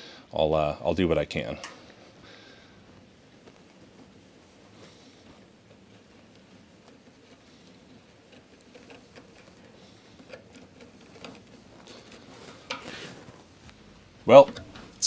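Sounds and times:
pencil and wooden block scratching: 5.4s - 13.4s.

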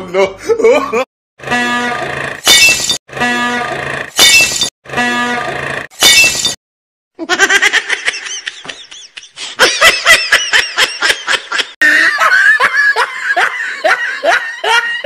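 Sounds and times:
person laughing: 0.0s - 1.1s, 7.2s - 15.0s.

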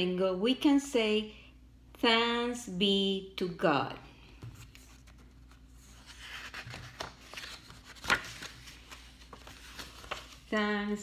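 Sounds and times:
book pages rustling: 4.4s - 10.6s.

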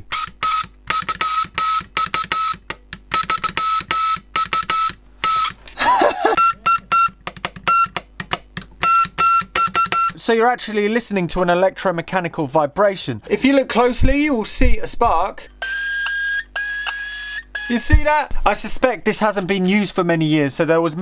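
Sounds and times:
morse buzzer beeping: 0.0s - 5.6s, 6.3s - 8.0s, 8.8s - 10.2s, 15.6s - 18.0s.

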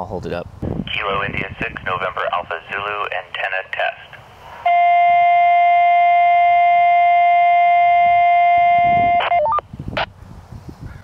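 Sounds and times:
test tone through radio speaker: 0.9s - 9.6s.

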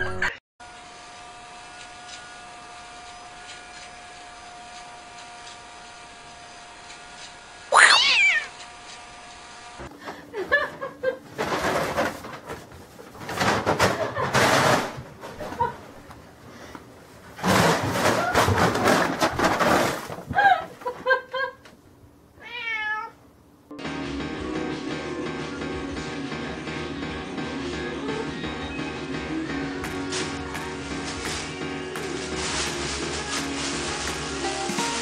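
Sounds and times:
cats meowing and yowling: 7.7s - 8.5s, 22.4s - 23.2s
background music: 23.7s - 35.0s.

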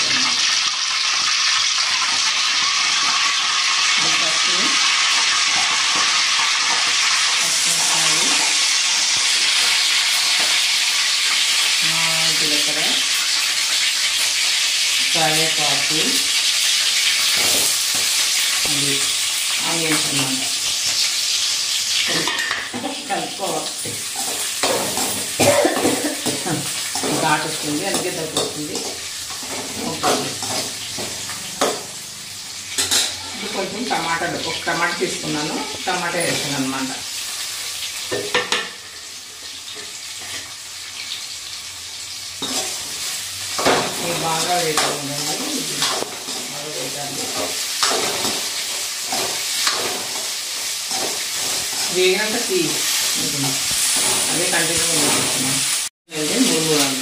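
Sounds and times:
onions sizzling in hot oil: 0.0s - 57.0s
spoon stirring and scraping pan: 19.3s - 34.0s, 42.2s - 55.8s.

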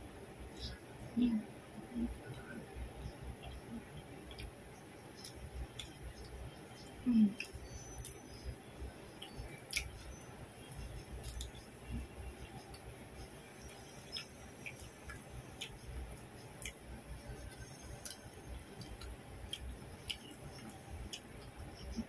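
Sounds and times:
chewing leaves: 9.2s - 22.0s.

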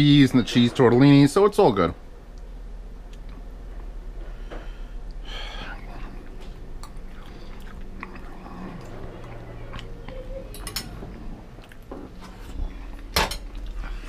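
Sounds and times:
person chewing food: 5.0s - 10.3s, 11.2s - 14.0s.

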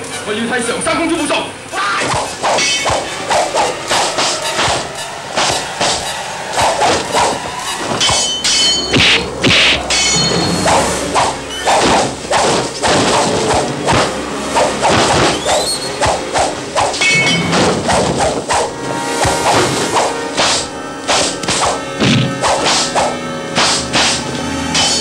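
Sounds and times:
background music: 0.6s - 25.0s
punch and kick thwacks: 20.4s - 24.2s.

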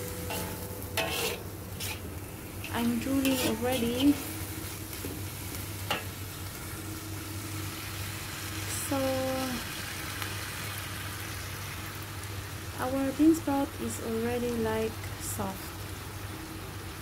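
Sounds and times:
food sizzling in a wok: 0.0s - 17.0s
metal spatula stirring: 0.2s - 4.4s.

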